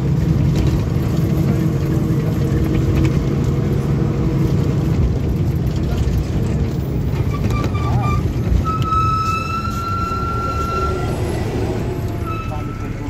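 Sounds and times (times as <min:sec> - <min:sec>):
low vehicle rumble: 0:00.0 - 0:13.0
vehicle horn beeping: 0:07.4 - 0:11.4, 0:12.2 - 0:13.0.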